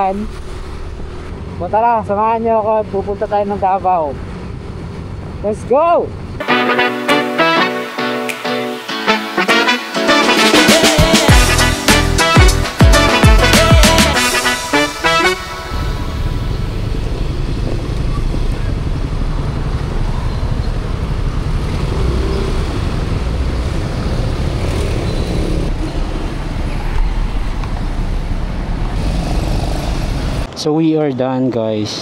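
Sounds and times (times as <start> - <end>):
wind: 0.0 - 6.4, 15.4 - 32.0
passing traffic: 0.0 - 10.0, 11.4 - 32.0
motor scooter engine rumble: 15.6 - 30.5.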